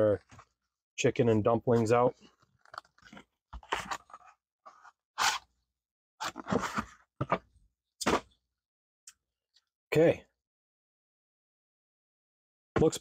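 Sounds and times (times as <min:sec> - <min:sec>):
packaging crinkling and scraping: 0:02.2 - 0:05.5.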